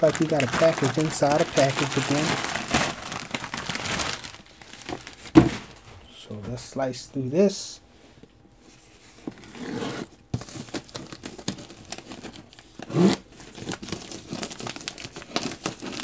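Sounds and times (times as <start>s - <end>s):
knife slicing plastic bag: 0.0s - 5.5s
plastic crinkling and rustling: 0.0s - 6.0s, 10.3s - 16.0s.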